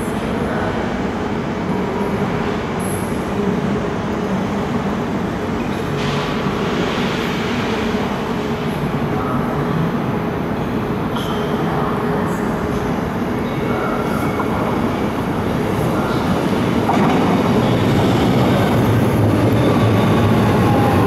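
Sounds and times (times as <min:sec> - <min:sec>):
electric train hum: 0:00.0 - 0:21.0.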